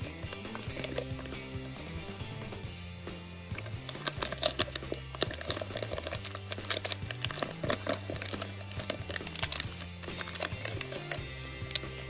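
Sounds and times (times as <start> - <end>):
plastic wrapper crinkling and tearing: 0.0 - 1.5, 3.6 - 12.0
background music: 0.0 - 12.0.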